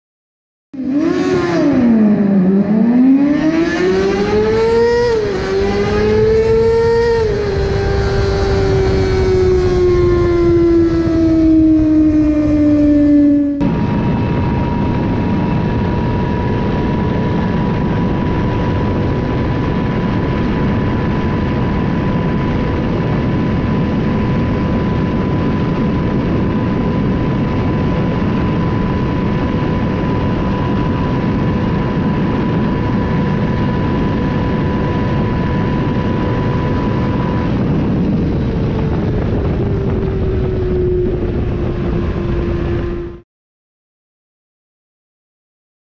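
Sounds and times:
heavy wind rush: 0.8 - 43.2
motorcycle engine at high revs: 0.8 - 43.2.

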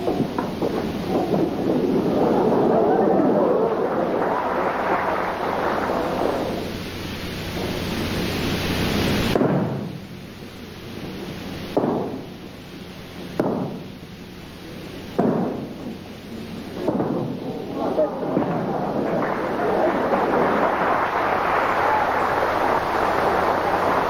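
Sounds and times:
heavy thuds: 0.0 - 3.3, 15.2 - 16.1, 16.7 - 21.1
dense rumbling noise: 0.0 - 11.7, 14.0 - 24.0.

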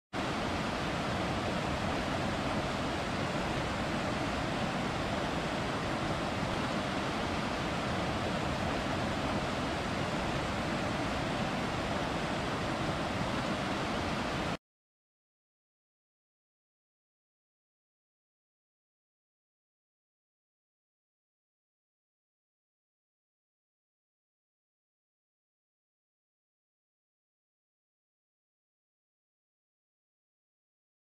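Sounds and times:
waterfall rushing: 0.2 - 14.6.

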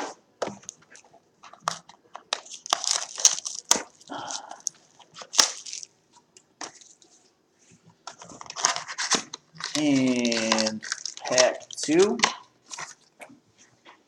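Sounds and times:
wrapper crinkling and rustling: 0.9 - 5.9, 8.0 - 13.1
sharp wrapper snaps: 2.3 - 5.9.

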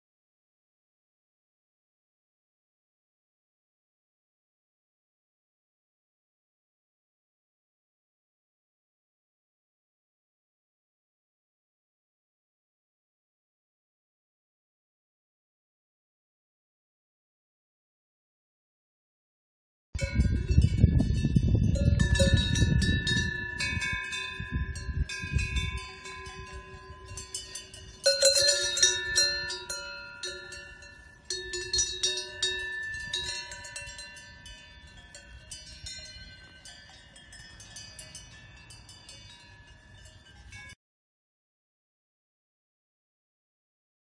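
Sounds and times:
cowbells clanking: 20.0 - 40.8.

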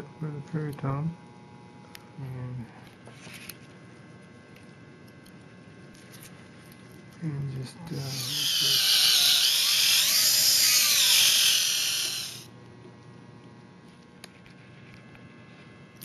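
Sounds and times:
dental drill whining: 7.9 - 12.5.

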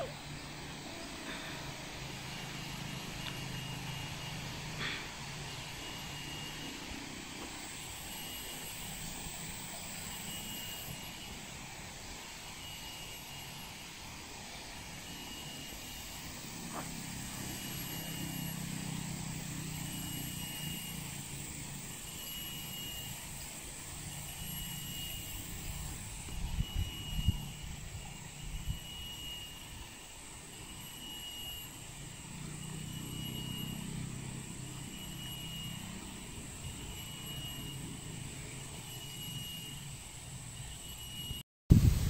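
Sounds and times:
distant engine drone: 0.0 - 42.0
short high beep: 1.3 - 7.0, 21.9 - 33.9, 34.5 - 41.8.

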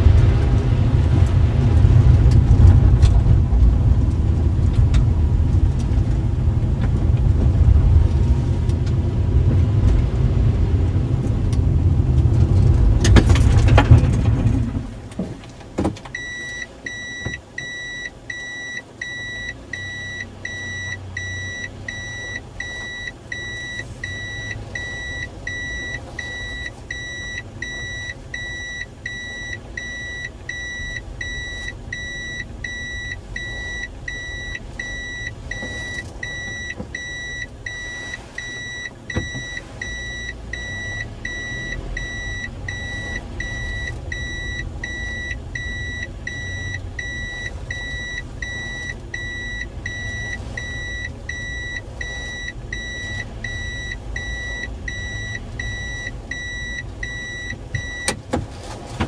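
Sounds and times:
low engine hum: 0.0 - 59.0
reverse warning buzzer beeping: 16.2 - 58.2.

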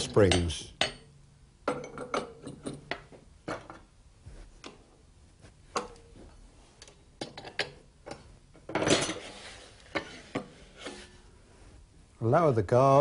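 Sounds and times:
wood scraping across table: 9.0 - 11.2.

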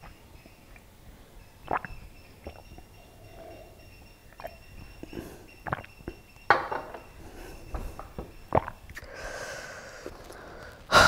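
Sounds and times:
glass clinks: 6.5 - 7.2.

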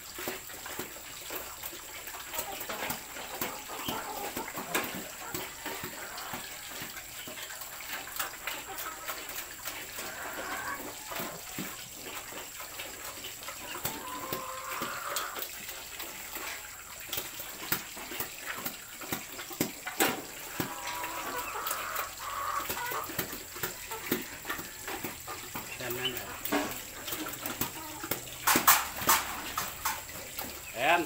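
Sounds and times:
chickens clucking: 0.1 - 31.0
sharp clicks and knocks: 26.4 - 30.5.

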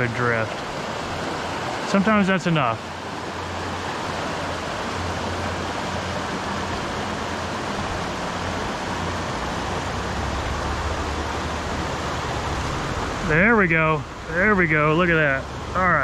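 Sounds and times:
river water over rocks: 0.0 - 16.0.

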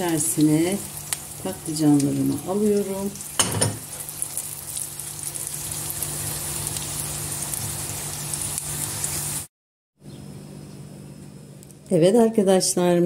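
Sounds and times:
food sizzling in hot oil: 0.0 - 9.5.

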